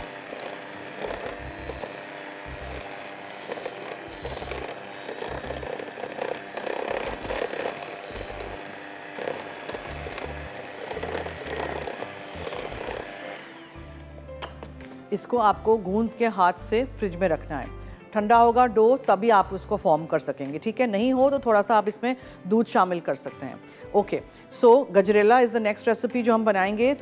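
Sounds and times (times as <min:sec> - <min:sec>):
electric mixer running: 0:00.0 - 0:15.0
background music: 0:00.0 - 0:27.0.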